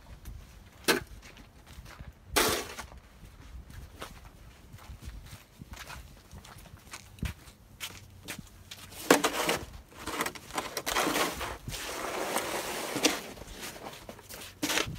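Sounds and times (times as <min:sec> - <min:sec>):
snow shovel scraping concrete: 0:02.4 - 0:02.9, 0:08.9 - 0:14.9.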